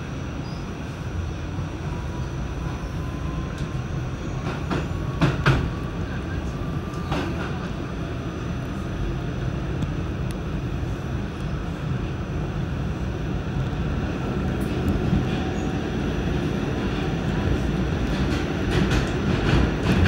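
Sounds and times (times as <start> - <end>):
subway car rumble: 0.0 - 20.0
wheels clacking on track: 4.3 - 5.8, 16.8 - 20.0.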